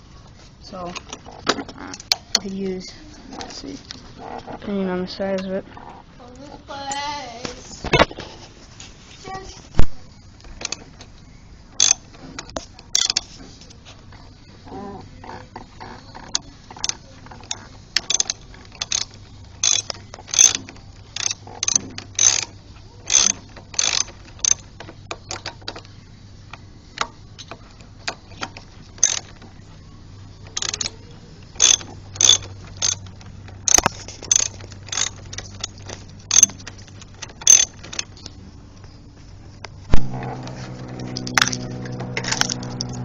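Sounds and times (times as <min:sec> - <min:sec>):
ratchet wrench clicking: 0:11.8 - 0:13.3, 0:16.2 - 0:24.6, 0:29.0 - 0:29.3, 0:30.5 - 0:33.1, 0:33.7 - 0:38.2.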